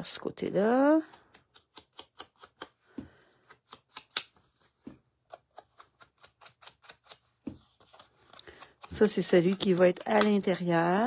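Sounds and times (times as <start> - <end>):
ink applicator dabbing on card: 8.5 - 11.0.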